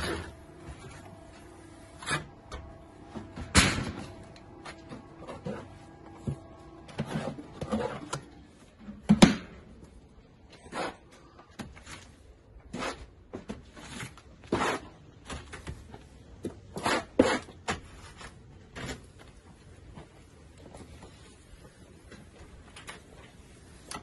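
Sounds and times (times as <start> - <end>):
trowel scraping mortar: 10.5 - 11.2, 11.9 - 15.0, 16.7 - 18.4.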